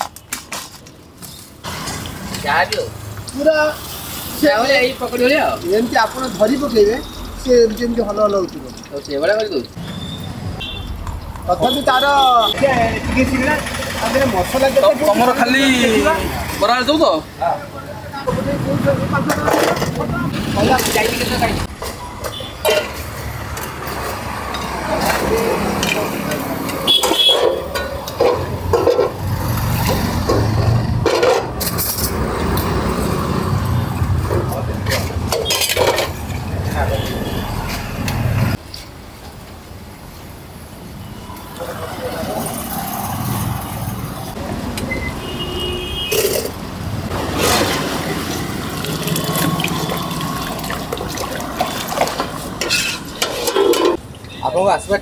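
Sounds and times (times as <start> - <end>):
steel utensils clinking: 19.3 - 30.4, 34.8 - 36.6, 46.0 - 46.6, 47.4 - 54.4
fritters sizzling in oil: 47.7 - 53.5.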